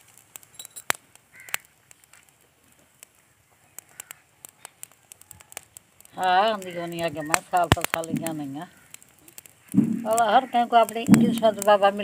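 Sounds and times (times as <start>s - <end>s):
glass bangles clinking: 0.5s - 0.9s.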